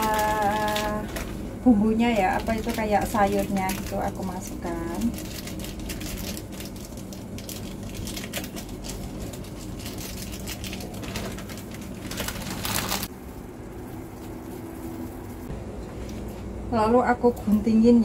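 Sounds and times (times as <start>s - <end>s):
plastic sachet crinkling: 0.0s - 1.4s, 2.1s - 13.1s
steady low hum: 0.0s - 18.0s.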